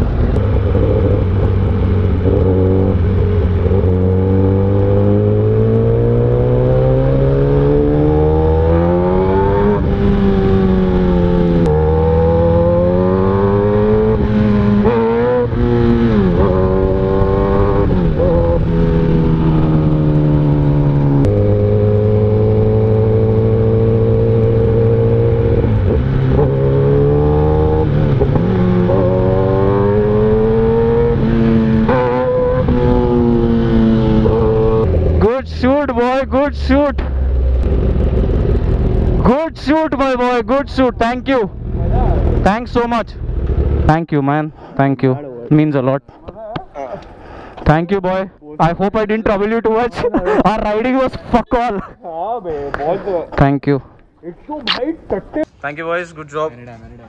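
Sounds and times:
motorcycle engine shifting gears: 0.0 - 39.8, 40.6 - 44.0.

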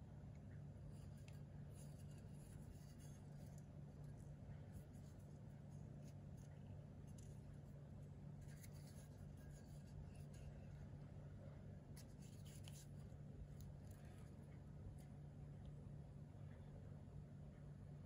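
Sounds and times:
knife handling ticks and rubbing: 0.9 - 11.0, 11.9 - 15.1.

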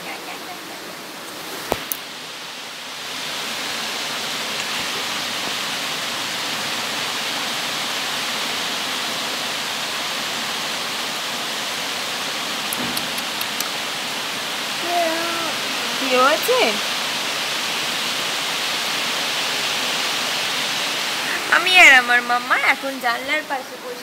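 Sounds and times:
heavy rain pouring: 0.0 - 24.0
small clicks: 12.7 - 13.8.

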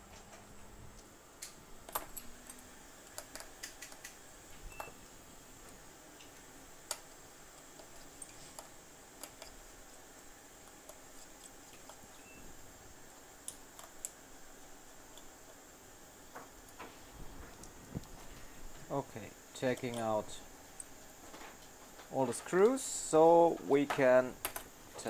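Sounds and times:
faint high-pitched whine: 0.0 - 25.0
hand tools clicking and tapping: 1.0 - 4.2.

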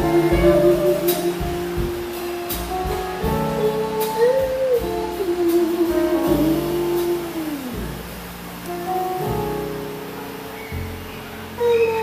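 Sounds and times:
double bass: 0.0 - 12.0
drum kit: 0.0 - 12.0
piano: 0.0 - 12.0.

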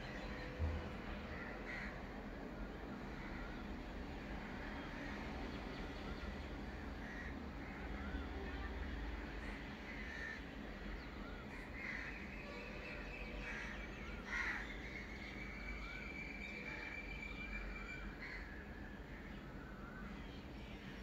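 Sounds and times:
crow cawing: 1.3 - 2.0, 7.0 - 7.4, 9.9 - 10.4, 13.4 - 14.7, 18.2 - 18.6.

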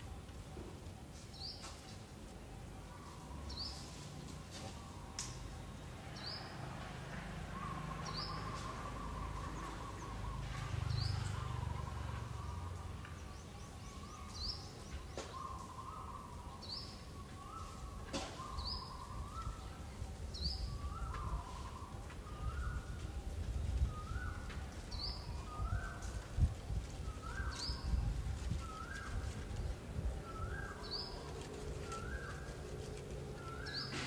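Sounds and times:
bird chirping: 7.5 - 34.0.

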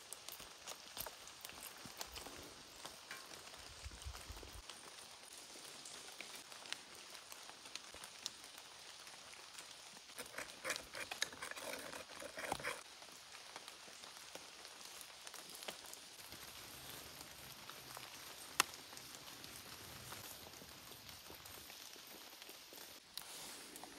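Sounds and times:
wooden spoon scraping clay bowl: 10.1 - 12.8.

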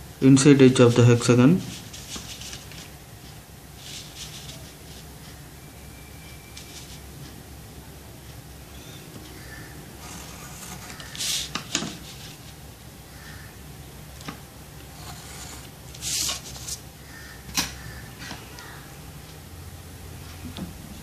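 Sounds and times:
pencil scratching on paper: 10.0 - 12.2, 15.0 - 16.8.

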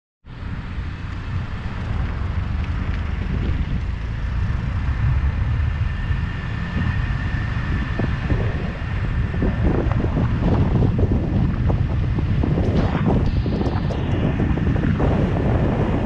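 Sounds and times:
tyre and road noise: 0.3 - 16.0
wind buffeting microphone: 0.4 - 16.0
faint high whine: 3.9 - 16.0.

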